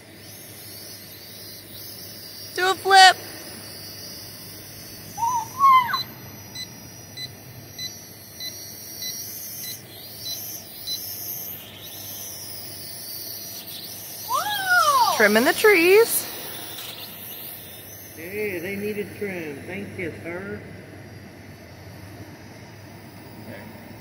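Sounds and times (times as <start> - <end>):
rising pitched call: 5.1 - 6.3, 14.2 - 16.3.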